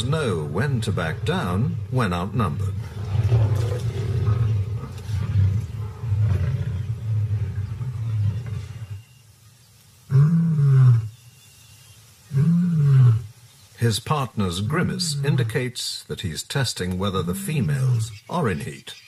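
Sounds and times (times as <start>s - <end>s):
lions growling: 0.0s - 9.1s, 17.1s - 18.1s.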